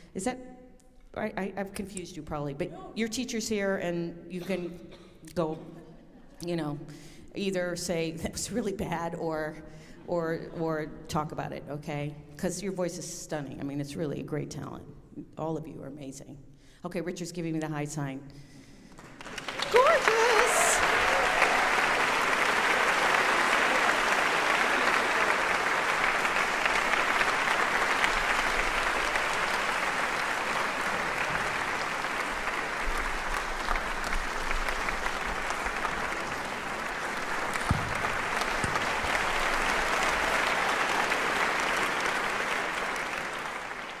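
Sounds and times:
audience applauding: 0:18.9 - 0:44.0.

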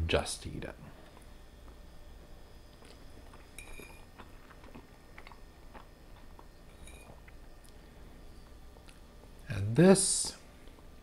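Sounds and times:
person chewing food: 0:02.7 - 0:07.8.

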